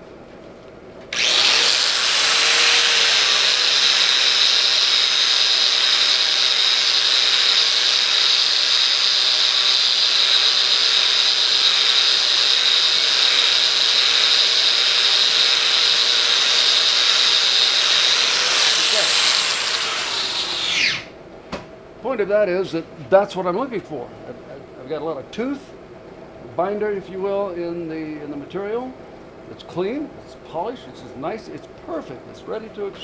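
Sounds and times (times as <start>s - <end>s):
angle grinder whine: 1.1s - 21.2s.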